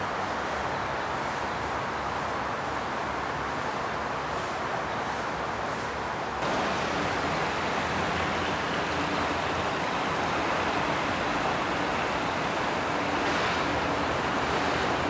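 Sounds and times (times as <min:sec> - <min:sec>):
fountain water splashing: 0:06.4 - 0:15.0.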